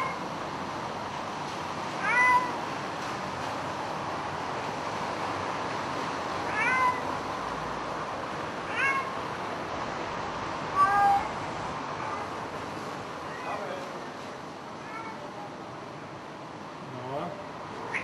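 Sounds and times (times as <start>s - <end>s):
cat meowing: 0.0s - 0.3s, 2.0s - 2.6s, 6.5s - 7.1s, 8.7s - 9.2s, 10.7s - 11.4s, 14.8s - 15.3s.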